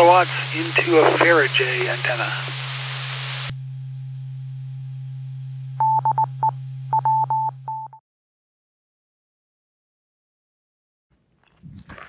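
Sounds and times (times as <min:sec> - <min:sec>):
radio transmission hiss: 0:00.0 - 0:03.5
steady low hum: 0:00.0 - 0:07.7
morse code beeps: 0:05.8 - 0:08.0.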